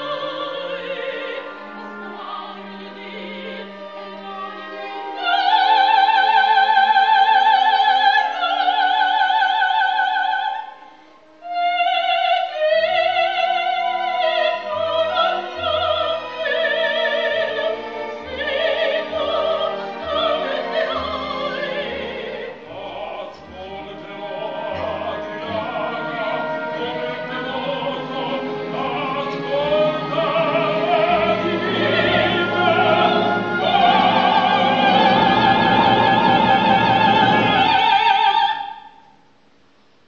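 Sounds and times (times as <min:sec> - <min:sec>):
soprano singing opera: 0:00.0 - 0:10.8, 0:11.4 - 0:39.0
orchestra playing: 0:13.7 - 0:38.2.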